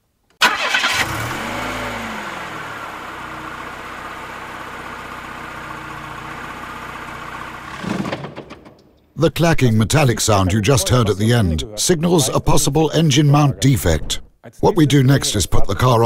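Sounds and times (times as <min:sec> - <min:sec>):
car engine starting and idling: 0:00.4 - 0:09.1.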